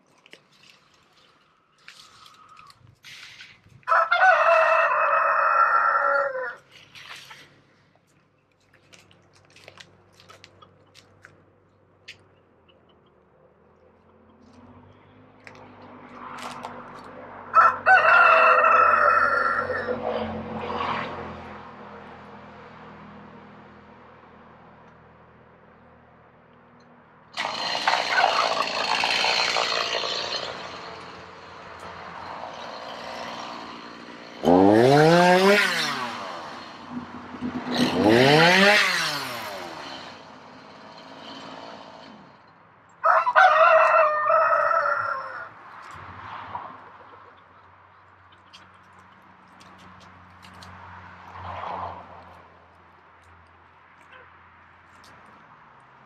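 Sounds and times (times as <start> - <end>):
roosters crowing: 3.8 - 6.8, 17.4 - 21.0, 32.0 - 36.7, 37.7 - 40.1, 43.0 - 45.7.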